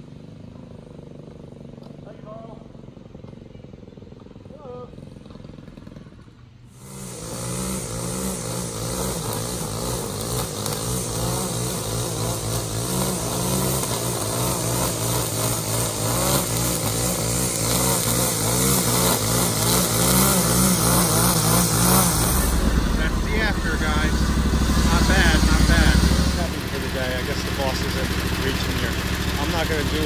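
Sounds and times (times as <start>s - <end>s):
string trimmer cutting grass: 6.7s - 30.0s.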